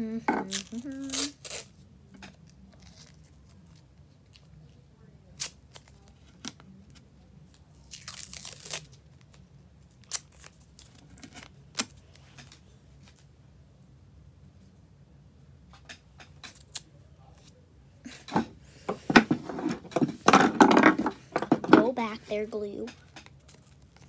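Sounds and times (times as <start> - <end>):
tape tearing: 0.4 - 1.8, 5.4 - 6.6, 7.8 - 9.0, 10.0 - 12.0.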